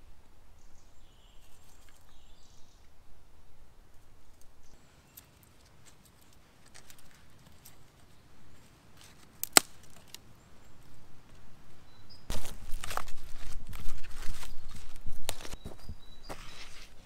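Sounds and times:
dry sticks clicking and rustling: 4.3 - 10.3, 12.3 - 15.8.

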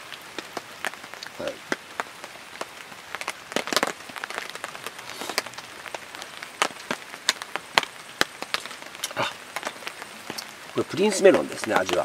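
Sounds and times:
raindrops tapping: 0.0 - 12.0.

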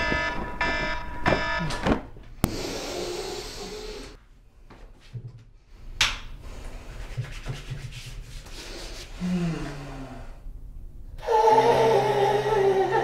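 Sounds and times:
hands rubbing cloth and skin: 6.9 - 9.1.

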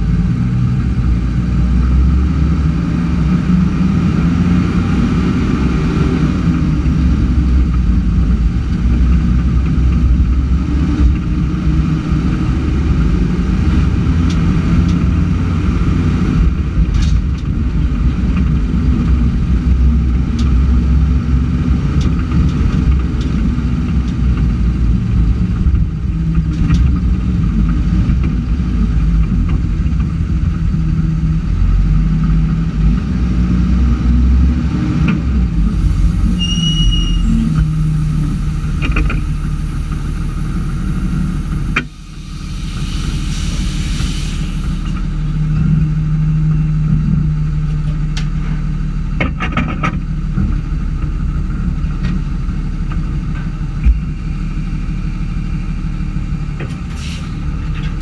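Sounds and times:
diesel engine running: 0.0 - 58.0
hissing: 35.7 - 45.2.

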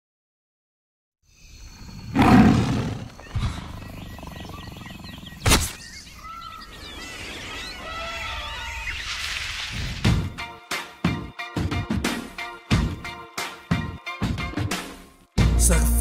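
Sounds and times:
birds chirping: 1.3 - 9.4
big cat roaring: 2.0 - 5.4.

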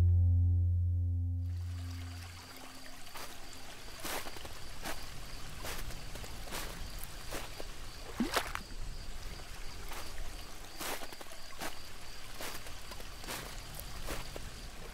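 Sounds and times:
low rumble: 0.0 - 2.8
water splashing softly: 1.6 - 14.9.

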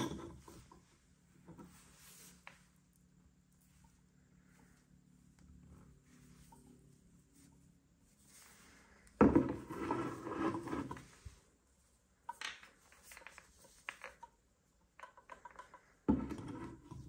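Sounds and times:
hands scraping and rubbing figure: 6.0 - 11.5.

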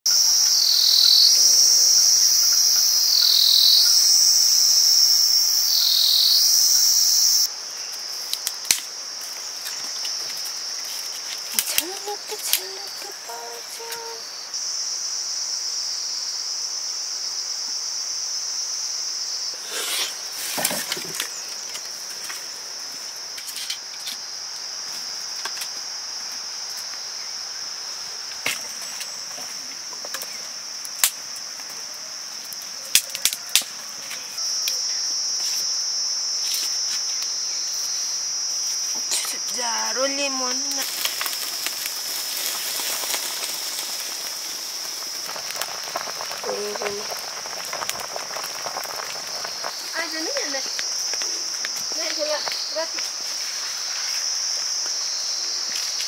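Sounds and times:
insect chorus trilling: 0.1 - 56.0.

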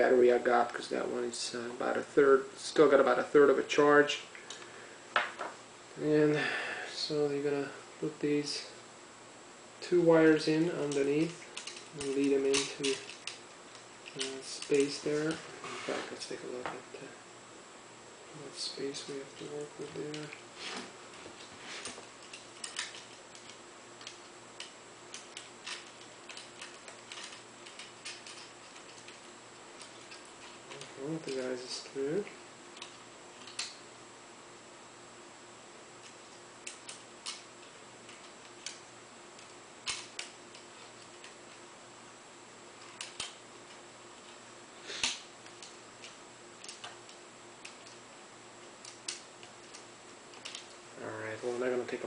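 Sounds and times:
plastic laptop parts clicking: 22.2 - 29.2, 39.8 - 41.3.

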